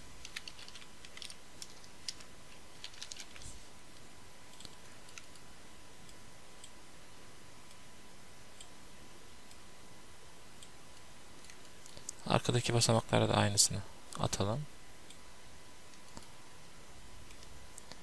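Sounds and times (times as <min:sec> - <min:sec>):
computer mouse clicks: 0:04.5 - 0:05.5, 0:15.9 - 0:16.4.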